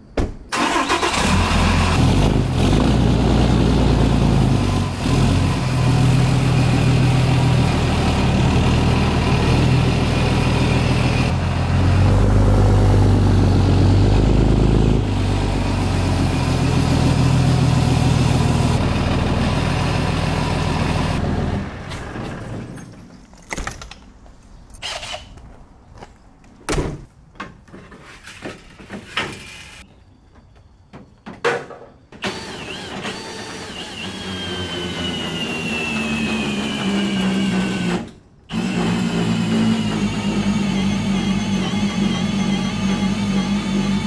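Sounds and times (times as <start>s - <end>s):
diesel pickup engine under load: 0.5s - 23.2s, 32.2s - 44.0s.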